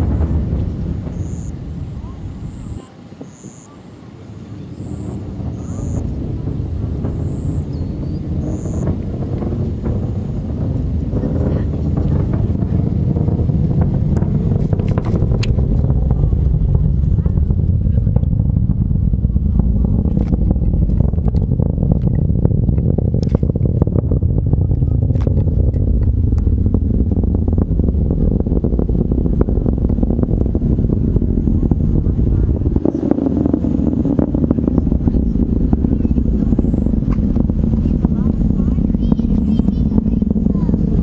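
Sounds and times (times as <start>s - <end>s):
rocket deep rumble: 0.0s - 41.0s
sharp crackling pops: 6.9s - 18.4s, 19.8s - 31.8s.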